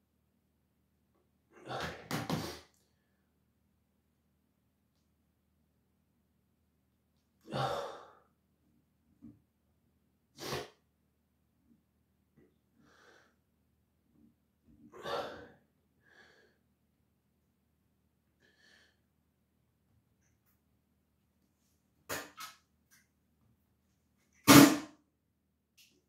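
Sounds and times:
man breathing heavily: 7.5s - 8.3s, 15.0s - 16.6s.

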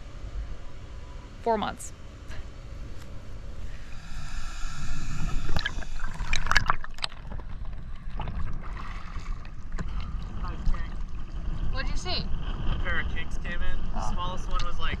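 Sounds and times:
faint steady whine: 0.0s - 15.0s
underwater rumble and gurgling: 2.7s - 15.0s.

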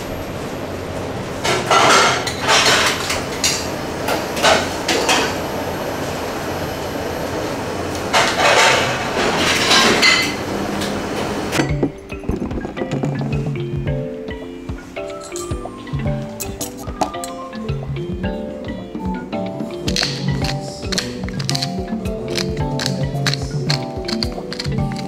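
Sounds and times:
metal utensils and pans clanking: 1.4s - 5.4s, 8.1s - 13.6s, 15.0s - 15.6s, 16.4s - 17.4s.

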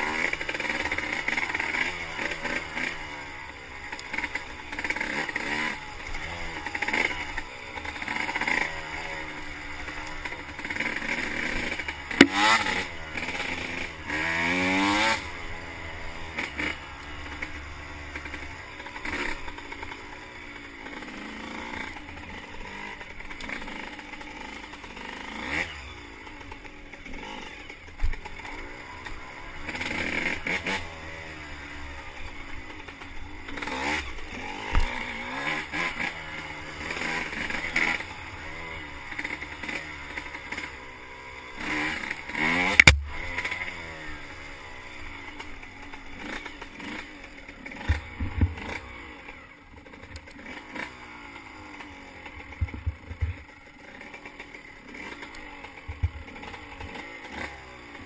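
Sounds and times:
motorcycle engine revving: 0.0s - 58.0s
motorcycle rattling: 0.0s - 58.0s
sharp knock: 42.8s - 43.2s.

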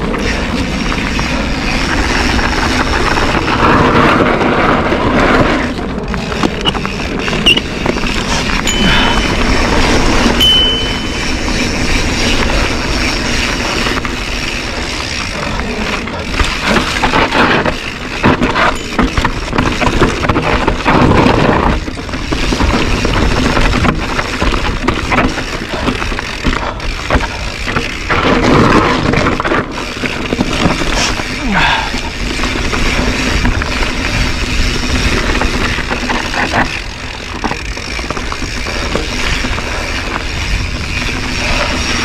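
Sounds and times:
bike rattling: 0.0s - 42.0s
tyres crunching over dirt and stones: 11.0s - 42.0s.

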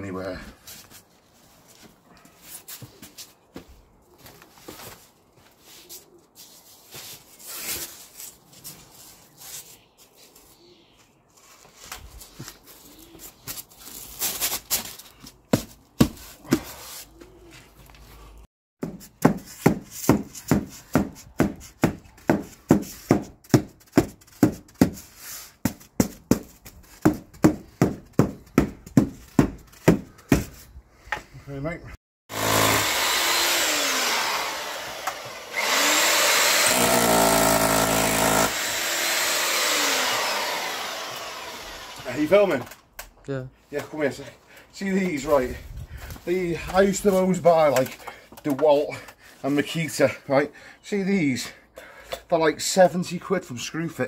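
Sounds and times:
palms slapping board: 18.8s - 25.0s
hands pressing insulation boards: 18.8s - 30.6s.

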